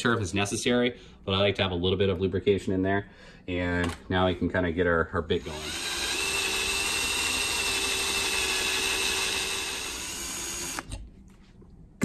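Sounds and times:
power drill whining into steel: 5.4s - 11.0s.

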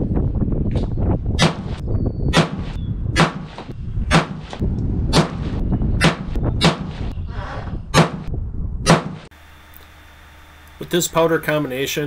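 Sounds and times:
wind rumble on microphone: 0.0s - 9.3s
gunshots with echo: 2.4s - 4.4s, 5.1s - 7.0s.

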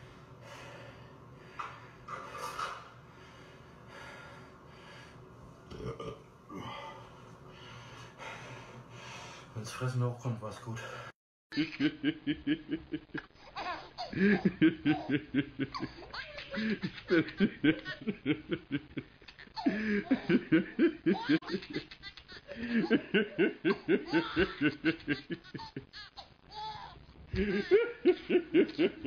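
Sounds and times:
man laughing: 14.1s - 19.0s, 19.6s - 21.8s, 27.3s - 29.0s.

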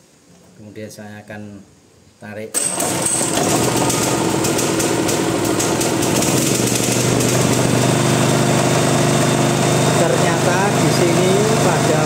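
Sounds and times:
portable generator engine running: 2.6s - 12.0s.

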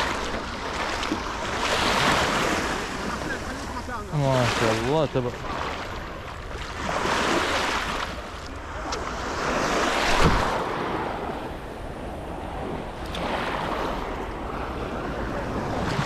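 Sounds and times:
small waves washing on beach: 0.0s - 16.0s
wind buffeting microphone: 8.2s - 16.0s
low thump: 10.1s - 10.6s.

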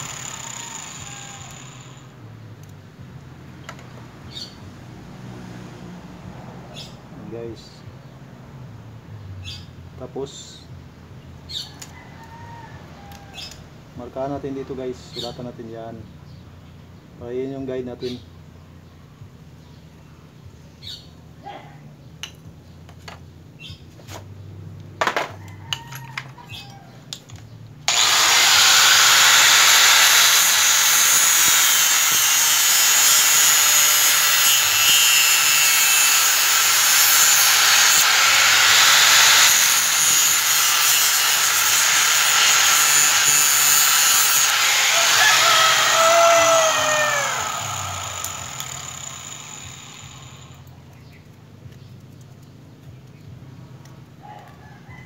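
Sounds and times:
angle grinder cutting metal: 0.0s - 2.2s, 27.9s - 50.7s.

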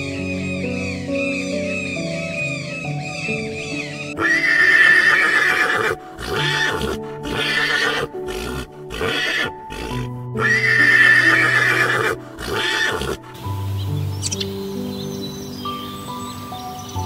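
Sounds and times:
background music: 0.0s - 17.0s
horse whinnying: 2.5s - 13.2s.

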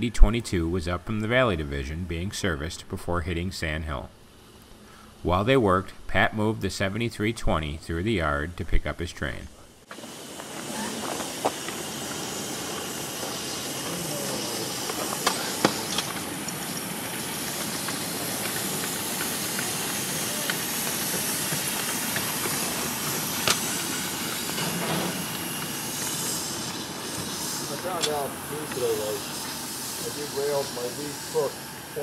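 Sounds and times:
steam locomotive hissing: 6.4s - 32.0s.

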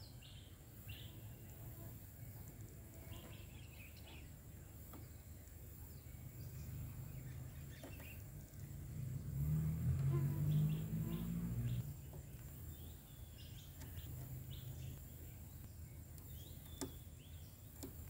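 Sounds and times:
faint bird chirps: 10.2s - 18.0s.

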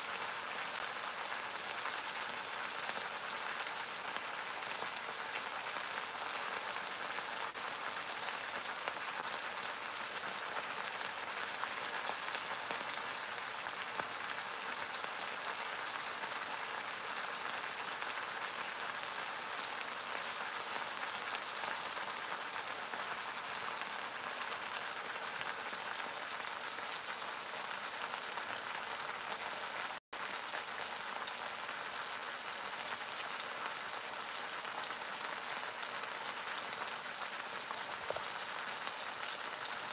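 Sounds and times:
meat sizzling in oil: 0.0s - 39.9s.

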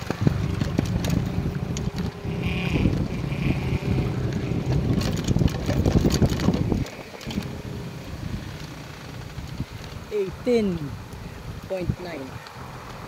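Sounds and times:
bicycle clicks and rattles: 0.0s - 7.7s, 8.3s - 10.1s
wind buffeting microphone: 0.0s - 13.0s.

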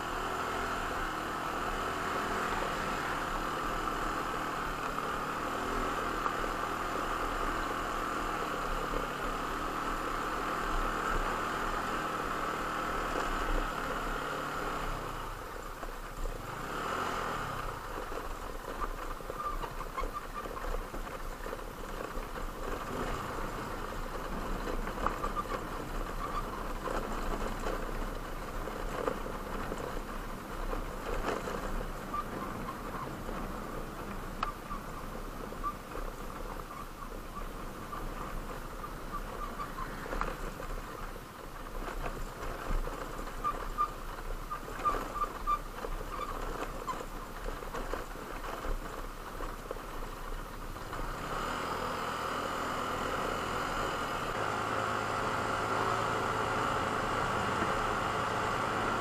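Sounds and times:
engine running: 0.0s - 59.0s
ticks and clatter: 17.6s - 51.9s.

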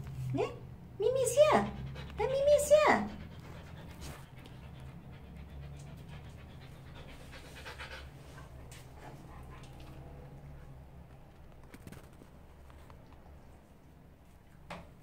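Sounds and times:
dog panting softly: 1.1s - 10.5s.

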